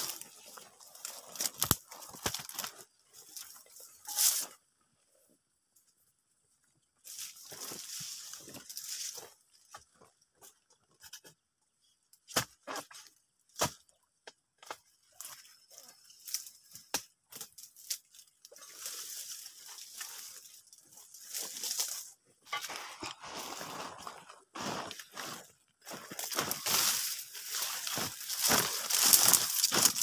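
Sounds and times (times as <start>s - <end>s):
dry leaves rustling and crackling: 0.0s - 4.5s, 7.1s - 9.4s, 15.2s - 23.8s, 25.9s - 30.0s.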